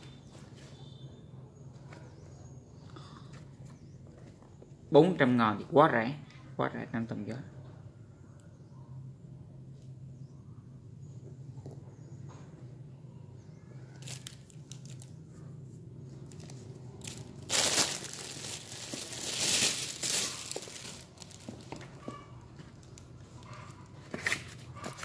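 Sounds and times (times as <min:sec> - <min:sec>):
packaging crinkling and rustling: 0:14.0 - 0:15.2, 0:16.2 - 0:23.1.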